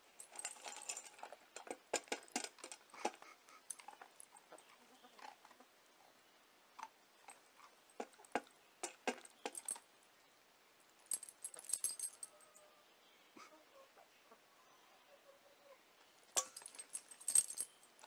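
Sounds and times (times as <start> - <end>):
jingling metal clicks: 0.2 - 4.7, 7.3 - 9.8, 11.1 - 12.4, 16.3 - 18.0
hen pecking kibble in metal bowl: 0.2 - 5.6, 6.8 - 9.8, 16.4 - 17.6.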